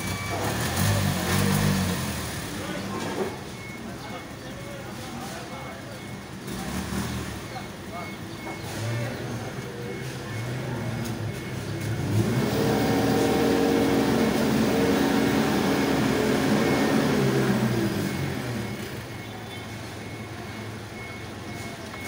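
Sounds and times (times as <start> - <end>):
forklift engine revving: 0.0 - 5.1, 6.0 - 22.0.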